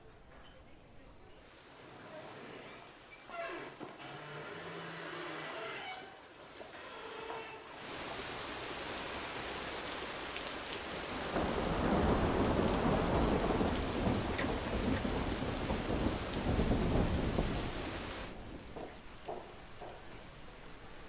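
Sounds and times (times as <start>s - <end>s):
steady rain falling: 1.4s - 21.0s
thunder rumbling: 9.2s - 18.8s.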